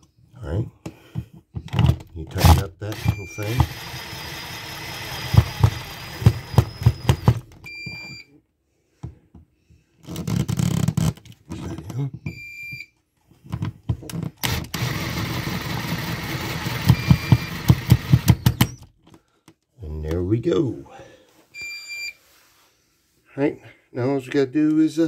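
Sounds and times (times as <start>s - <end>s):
cordless drill driving screws: 2.4s - 7.5s, 14.4s - 18.8s
power supply beeps: 2.9s - 3.7s, 6.2s - 8.3s, 12.3s - 12.9s, 16.8s - 18.8s, 21.6s - 22.2s.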